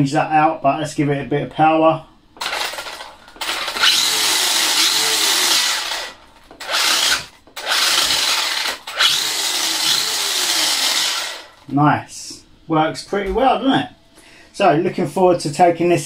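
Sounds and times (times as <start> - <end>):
electric motor spinning wheels: 2.4 - 11.7.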